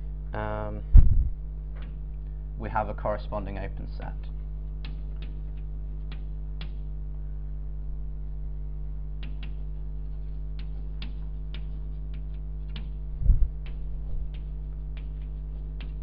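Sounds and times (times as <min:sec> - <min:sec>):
mains hum: 0:00.0 - 0:16.0
dull low thumps: 0:00.8 - 0:01.9, 0:13.1 - 0:14.4
chalk tapping on blackboard: 0:09.2 - 0:13.0, 0:13.6 - 0:16.0.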